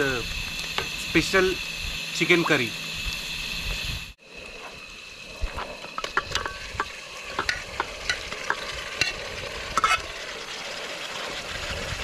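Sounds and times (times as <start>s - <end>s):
food sizzling in a pan: 0.0s - 4.1s, 5.9s - 12.0s
spoon scraping and knocking pan: 6.0s - 9.2s, 9.8s - 10.0s.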